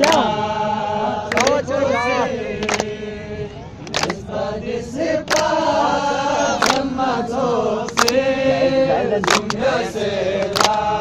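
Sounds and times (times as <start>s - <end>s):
sharp hand claps: 0.0s - 0.3s, 1.3s - 1.6s, 2.6s - 2.9s, 3.8s - 4.2s, 5.2s - 5.6s, 6.6s - 6.9s, 7.9s - 8.2s, 9.2s - 9.7s, 10.4s - 10.9s
men singing in unison: 0.0s - 11.0s.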